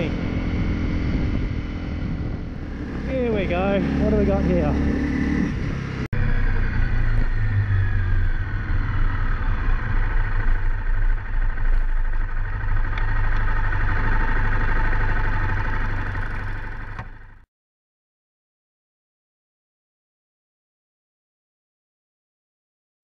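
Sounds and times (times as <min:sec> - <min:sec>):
motorcycle engine running: 0:00.0 - 0:17.4.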